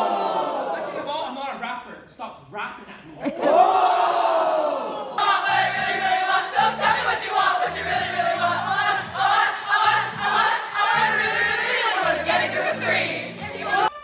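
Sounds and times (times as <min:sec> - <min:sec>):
girls singing together loudly: 0:05.2 - 0:13.9.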